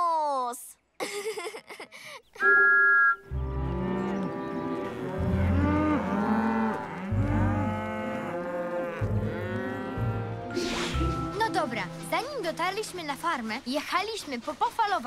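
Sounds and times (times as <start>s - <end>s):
cartoon cows mooing: 3.4s - 10.6s.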